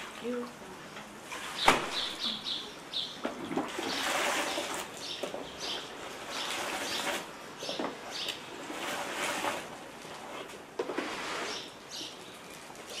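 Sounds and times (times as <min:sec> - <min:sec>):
sharp knock: 0:01.6 - 0:02.1.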